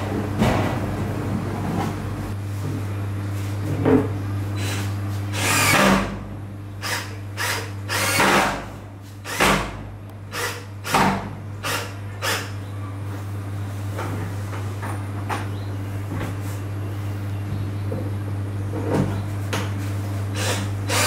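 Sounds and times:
steady low hum: 0.0s - 21.0s
power drill bursts: 5.4s - 5.9s, 6.8s - 8.4s, 20.4s - 21.0s.

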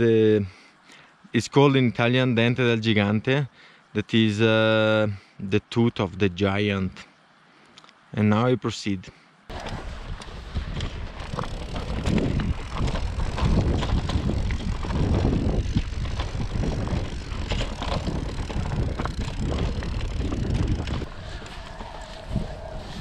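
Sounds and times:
bike knocks and rattles: 9.5s - 21.9s
bike tyre noise on dirt: 9.5s - 23.0s
wind rumble on microphone: 9.5s - 23.0s.

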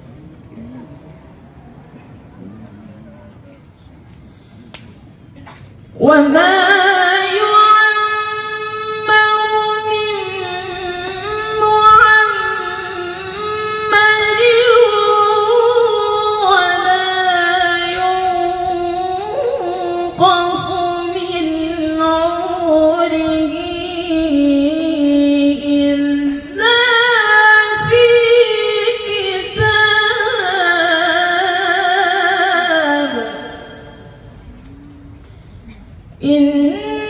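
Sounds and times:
woman chanting into a microphone: 6.0s - 34.2s.

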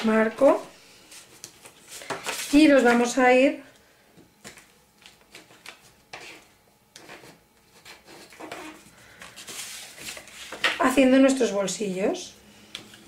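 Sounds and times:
paper rustling and scraping: 1.1s - 3.2s, 8.1s - 10.9s.

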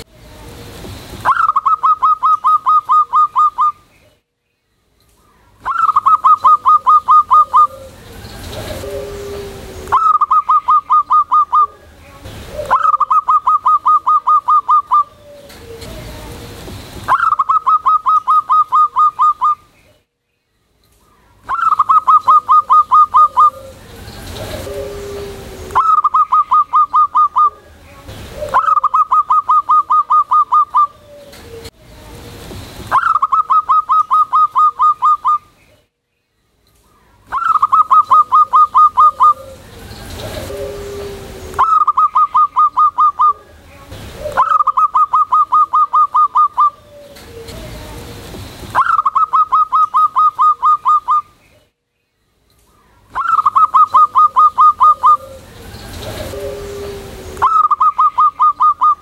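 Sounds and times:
dove staccato cooing: 1.2s - 3.8s, 5.6s - 19.6s, 21.5s - 31.8s, 37.3s - 48.2s, 53.1s - 59.0s.

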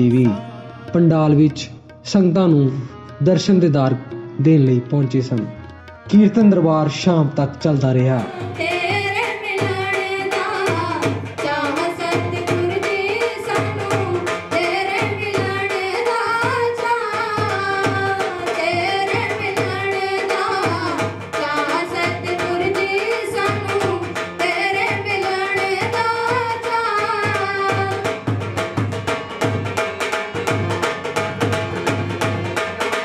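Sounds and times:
tabla drum beat: 0.0s - 33.0s
person singing devotional song: 3.2s - 28.6s.

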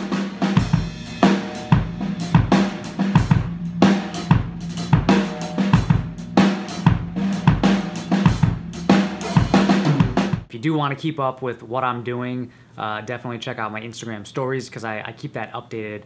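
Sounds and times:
drum kit beat: 0.0s - 10.5s.

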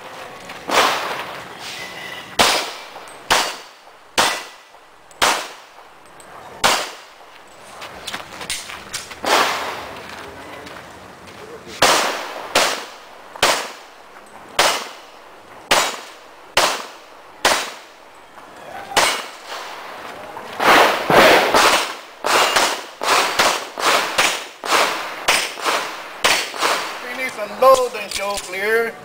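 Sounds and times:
handgun shots with echo: 2.4s - 4.6s, 5.2s - 5.6s, 6.6s - 7.1s, 11.8s - 13.8s, 14.6s - 15.0s, 15.7s - 17.8s, 19.0s - 19.4s, 20.6s - 27.0s.

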